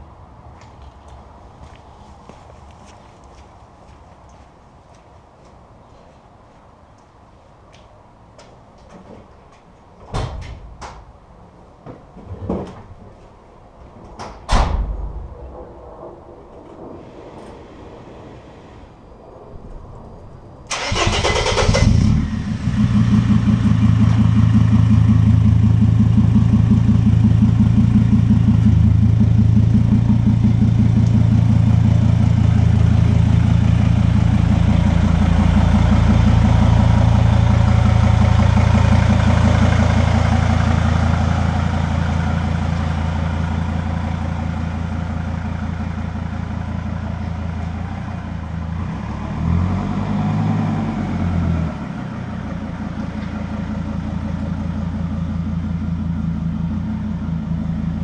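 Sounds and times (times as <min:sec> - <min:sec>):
diesel engine idling: 0:20.7 - 0:48.7, 0:51.1 - 0:58.0.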